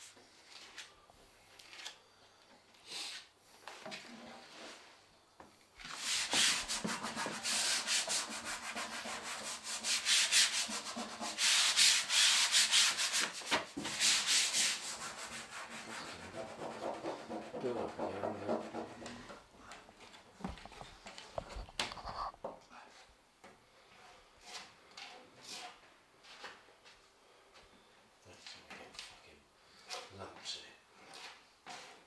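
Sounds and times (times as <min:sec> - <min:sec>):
brush and hands rubbing panel: 0:05.8 - 0:19.4, 0:21.5 - 0:23.1, 0:31.0 - 0:32.0.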